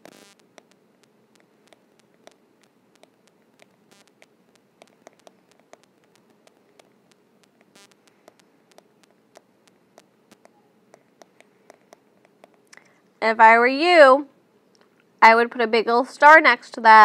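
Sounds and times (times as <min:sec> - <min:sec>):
steady low hiss: 0:00.0 - 0:17.0
stylus tapping on glass screen: 0:03.0 - 0:12.6.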